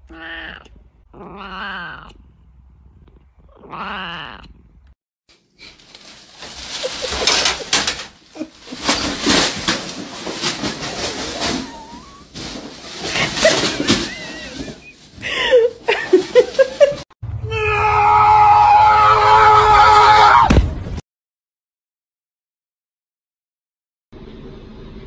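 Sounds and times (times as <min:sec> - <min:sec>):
cat meowing: 0:00.0 - 0:02.2, 0:03.6 - 0:04.6
plastic bag rustling: 0:05.3 - 0:17.0.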